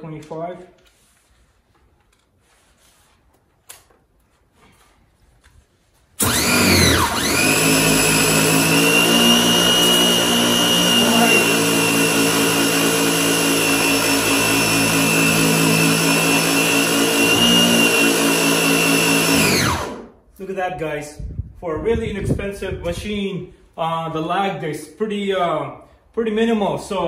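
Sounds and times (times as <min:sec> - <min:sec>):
pressure washer motor running: 0:06.2 - 0:20.1.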